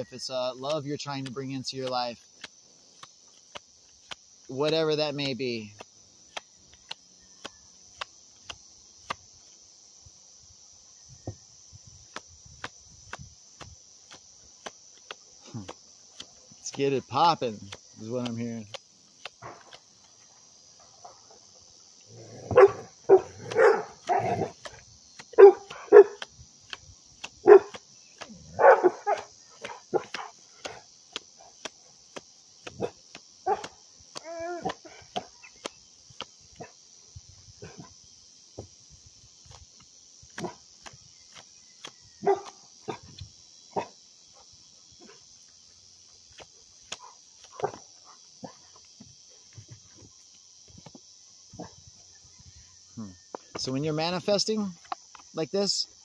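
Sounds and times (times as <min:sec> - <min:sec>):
insects droning: 0:00.0 - 0:56.0
dog barking: 0:22.5 - 0:24.5, 0:25.4 - 0:26.2, 0:27.4 - 0:27.8, 0:28.6 - 0:30.3, 0:33.5 - 0:33.7, 0:42.2 - 0:43.0.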